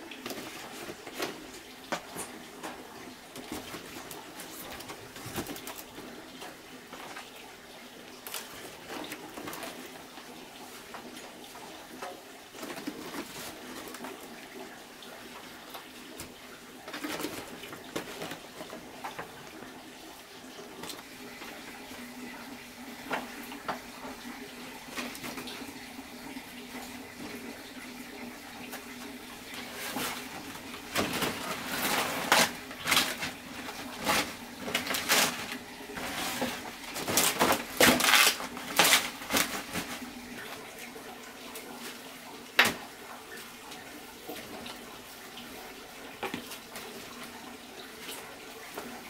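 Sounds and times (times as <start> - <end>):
leaves rustling and crackling: 28.6 - 40.9.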